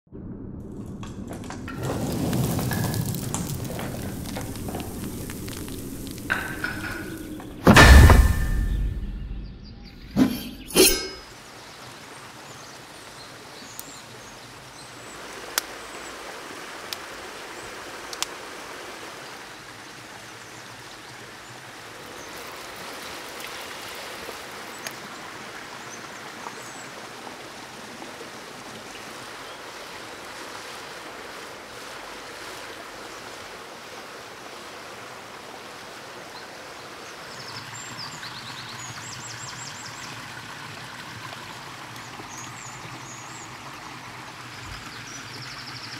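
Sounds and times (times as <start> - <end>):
forest stream rushing: 1.7 - 8.8, 10.2 - 45.9
high bird chirps: 6.3 - 11.3.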